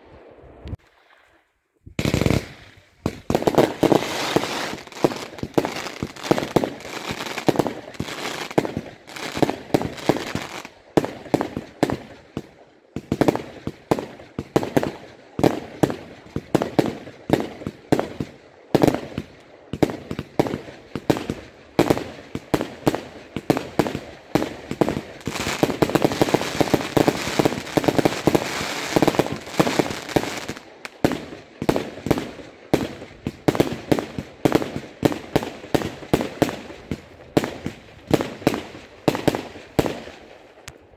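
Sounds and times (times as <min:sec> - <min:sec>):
fireworks bangs and crackles: 0:01.9 - 0:40.8.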